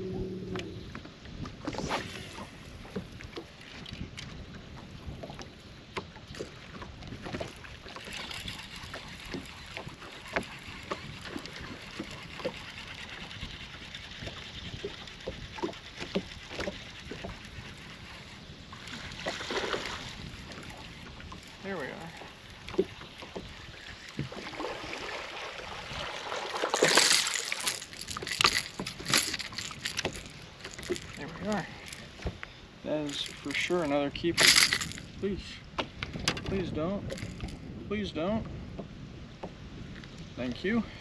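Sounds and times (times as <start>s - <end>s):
fishing reel whirring: 7.9s - 19.2s, 26.7s - 32.2s, 33.1s - 35.1s, 37.1s - 37.6s.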